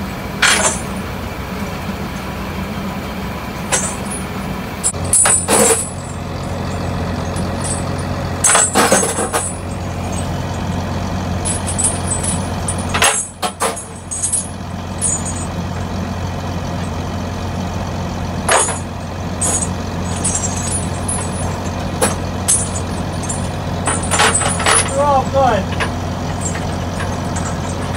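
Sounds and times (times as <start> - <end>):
low engine hum: 0.0 - 27.9
steel chains clanking: 0.4 - 1.3, 3.5 - 17.6, 18.2 - 27.9.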